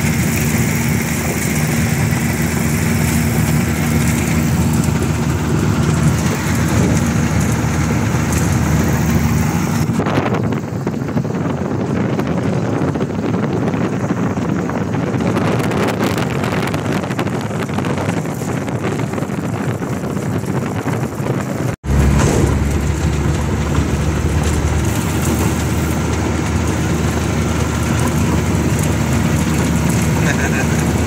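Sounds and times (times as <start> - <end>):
small airplane engine and propeller: 0.0 - 31.0.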